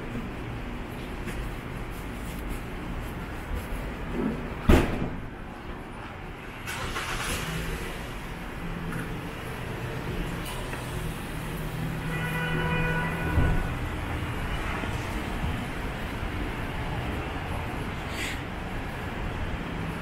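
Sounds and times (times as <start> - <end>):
traffic rumble: 0.0 - 20.0
passing vehicle hiss: 6.6 - 8.5, 14.3 - 19.9.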